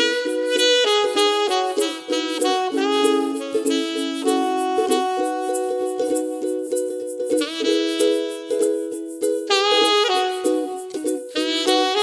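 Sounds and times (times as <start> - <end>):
alto saxophone melody: 0.0 - 12.0
strummed ukulele: 0.0 - 12.0.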